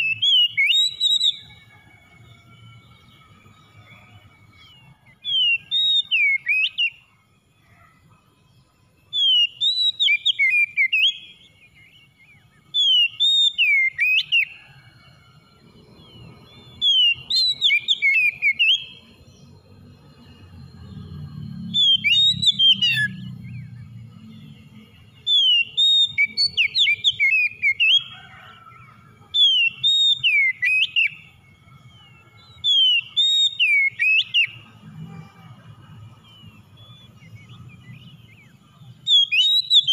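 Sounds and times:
bird singing whistled phrases: 0.0s - 1.6s, 4.6s - 7.0s, 9.1s - 14.6s, 16.0s - 19.1s, 21.0s - 28.3s, 29.4s - 34.6s, 36.2s - 39.9s.

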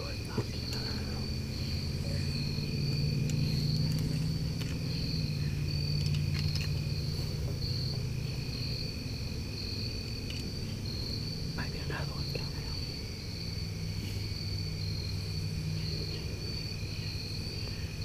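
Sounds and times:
insects chirring: 0.0s - 18.0s
faint ticks: 0.2s - 1.0s, 2.9s - 5.0s.

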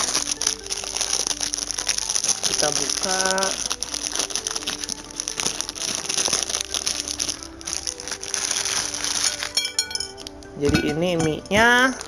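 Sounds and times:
plastic packet crinkling and tearing: 0.0s - 10.5s
quiet background music: 0.0s - 12.0s.

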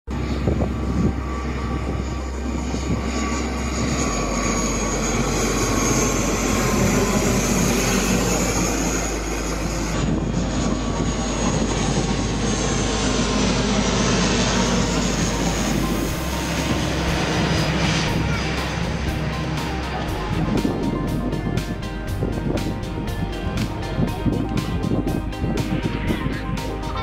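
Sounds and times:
high engine whine: 0.1s - 27.0s
turboprop engine and propeller drone: 0.1s - 27.0s.

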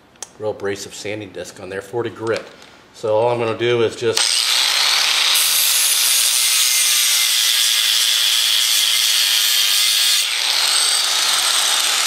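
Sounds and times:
angle grinder grinding metal: 4.2s - 12.0s.

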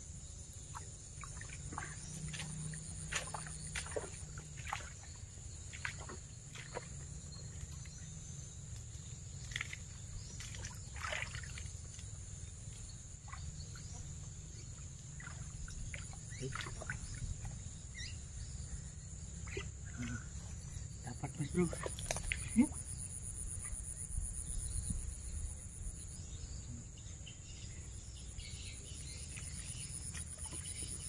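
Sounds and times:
high insect drone: 0.0s - 31.0s
splashing through muddy water: 0.7s - 8.0s, 9.3s - 17.7s, 21.3s - 22.8s.

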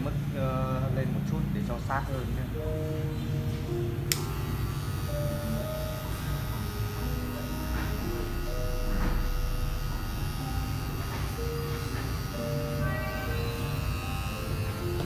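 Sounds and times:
background music: 0.0s - 15.0s
hair clipper running: 4.1s - 15.0s.

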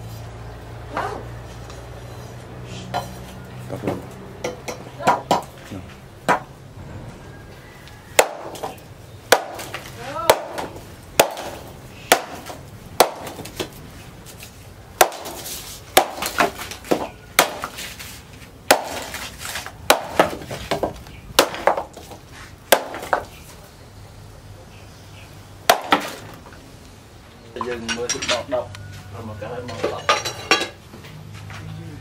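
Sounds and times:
knife chopping bamboo on wood: 3.8s - 5.6s, 6.2s - 6.5s, 8.1s - 23.4s, 25.7s - 26.4s.

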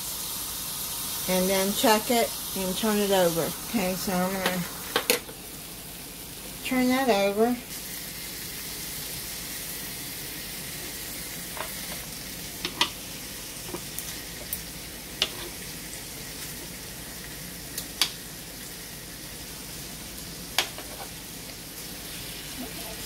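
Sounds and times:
meat sizzling on electric grill: 0.0s - 23.0s
metal tongs clicking on grill: 12.6s - 13.0s.

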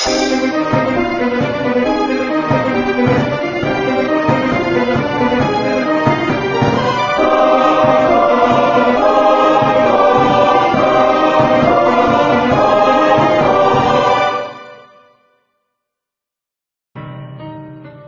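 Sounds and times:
choir singing sustained notes: 0.0s - 1.2s, 6.6s - 14.9s.

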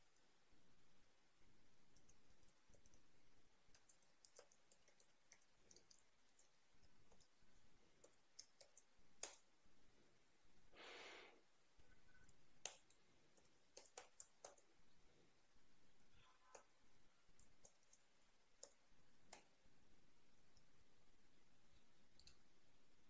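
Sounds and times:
soft hiss: 0.0s - 23.0s
typing on computer keyboard: 3.7s - 7.4s, 12.6s - 14.7s.

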